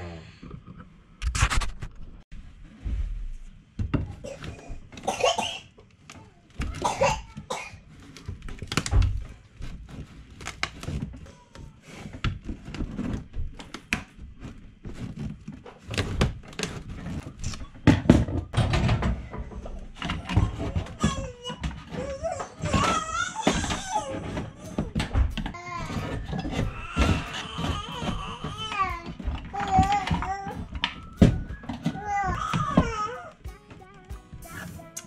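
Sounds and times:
knocking and scraping on wood panel: 7.8s - 33.0s.

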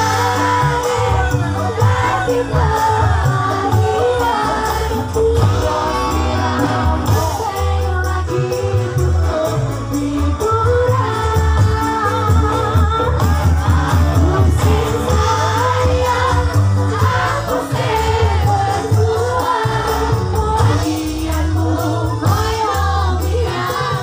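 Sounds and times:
live band through loud speakers: 0.0s - 24.0s
woman singing: 0.0s - 24.0s.

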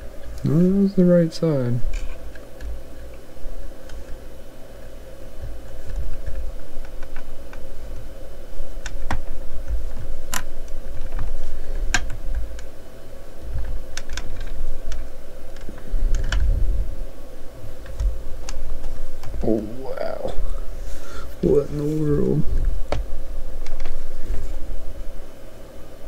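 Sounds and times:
faint steady hum: 0.0s - 26.0s
hands rubbing on work mat: 20.8s - 22.4s.

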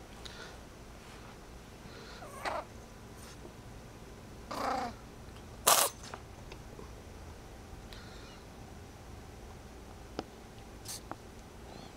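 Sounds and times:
kitten sneezing: 5.6s - 6.0s.

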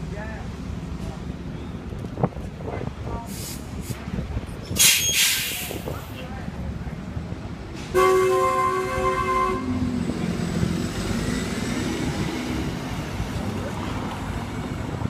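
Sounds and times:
bus engine passing: 0.0s - 15.0s
street traffic: 0.0s - 15.0s
vehicle horn chord: 8.0s - 9.8s.

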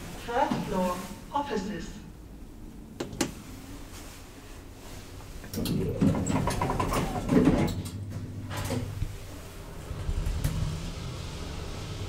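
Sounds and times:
elevator doors rattling shut: 5.5s - 11.8s.

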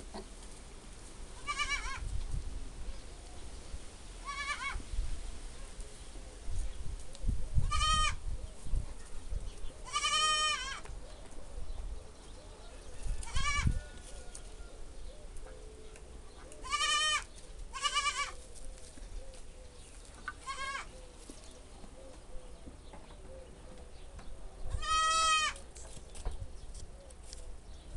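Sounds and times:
goats bleating: 9.9s - 10.8s, 16.6s - 18.4s, 20.4s - 20.9s, 24.8s - 25.6s.

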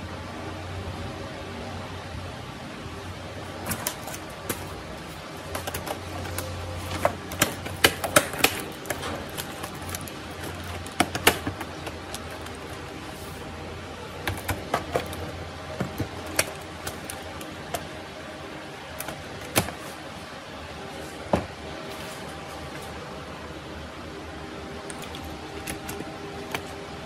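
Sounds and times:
plastic laptop parts clicking: 3.5s - 13.4s, 14.2s - 18.0s, 18.9s - 19.9s, 24.9s - 26.8s.

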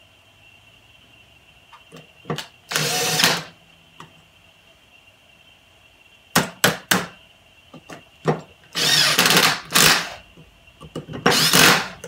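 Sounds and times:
cordless drill bursts: 2.7s - 3.5s, 8.8s - 10.2s, 11.3s - 12.0s.

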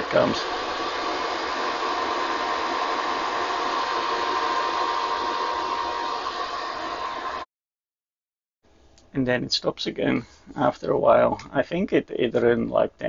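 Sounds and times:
cooling fans whirring: 0.0s - 7.5s.

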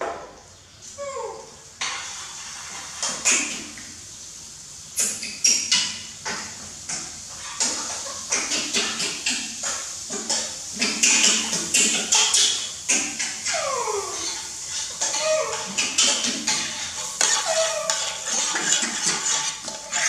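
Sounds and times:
bread frying sizzle: 0.0s - 20.0s
metal spatula scraping pan: 1.8s - 3.6s, 14.2s - 20.0s.

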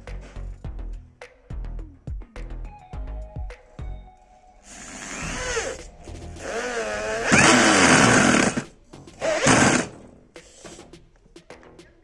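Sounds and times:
drill bit cutting into board: 4.7s - 5.8s, 6.4s - 10.0s
electric drill motor whine: 4.7s - 10.0s.

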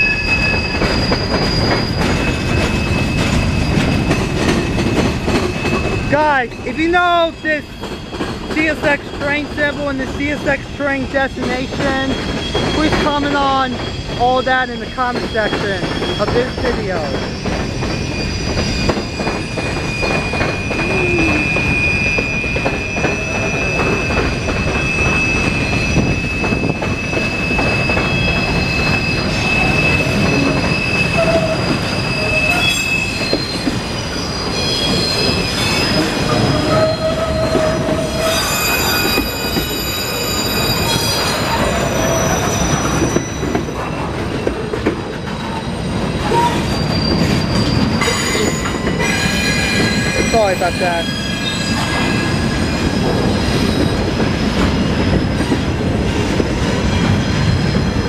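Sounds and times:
heavy rumble of train cars: 0.0s - 58.0s
train wheels squealing on rails: 0.0s - 58.0s.

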